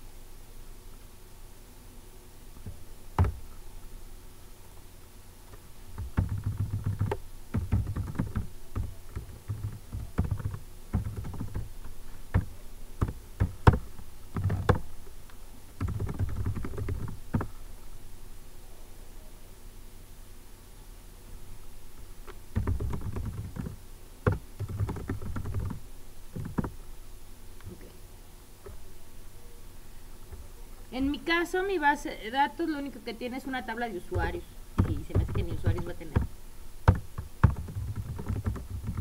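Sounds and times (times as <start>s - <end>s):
typing on a keyboard: 6.0s - 11.7s, 12.3s - 13.8s, 15.8s - 17.5s, 22.6s - 25.8s, 26.4s - 26.7s, 34.2s - 36.3s, 36.9s - 39.0s.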